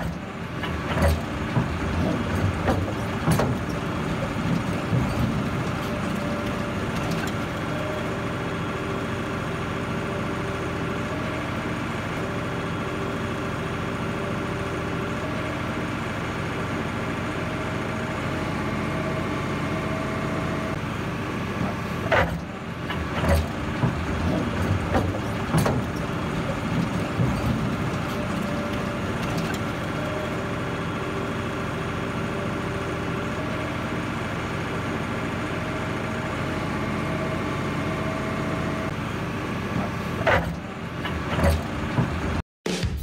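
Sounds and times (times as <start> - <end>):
knocks and clunks: 0.0 - 7.9, 21.6 - 30.2, 39.8 - 42.4
heavy machine engine running: 0.0 - 43.0.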